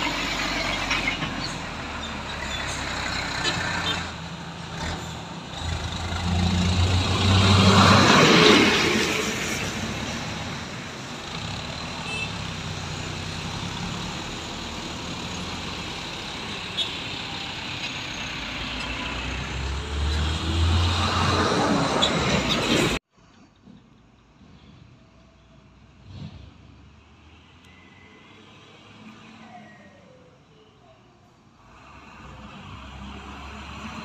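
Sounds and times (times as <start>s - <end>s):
truck driving past: 0.0s - 23.0s
diesel truck engine close: 0.0s - 23.7s
traffic engine noise: 0.0s - 34.0s.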